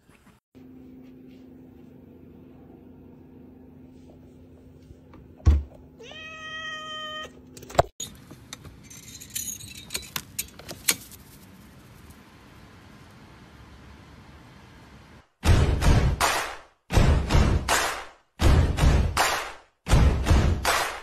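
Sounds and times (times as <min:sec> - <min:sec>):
cat meowing: 0:06.0 - 0:07.4.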